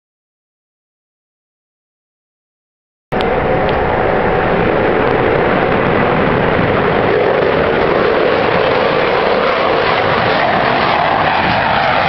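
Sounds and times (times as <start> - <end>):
jet engines roaring overhead: 3.1 - 12.0.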